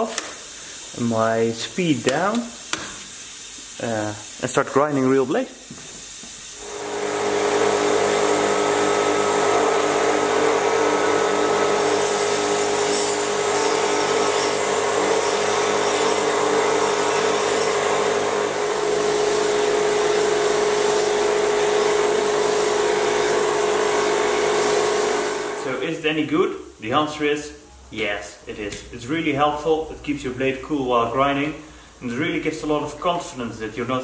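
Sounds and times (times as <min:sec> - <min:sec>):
hiss of air mist spray: 0:00.0 - 0:25.8
blade grinding against belt: 0:06.6 - 0:18.7
belt grinder running: 0:06.6 - 0:25.8.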